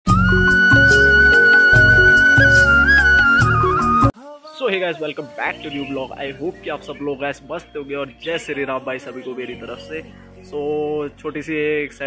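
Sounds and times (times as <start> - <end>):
intro music with steady beat: 0.1 - 4.1.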